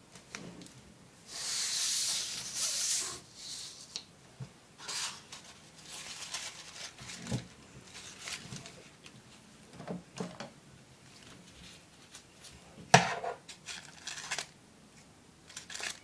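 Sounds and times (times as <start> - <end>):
paper rustling and crinkling: 4.8 - 9.4, 13.5 - 14.6, 15.5 - 16.0.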